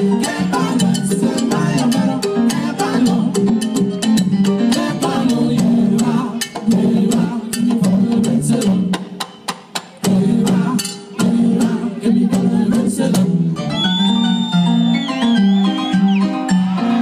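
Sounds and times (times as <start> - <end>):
electric bass line: 0.0 - 9.0
conga and percussion hits: 0.0 - 12.5.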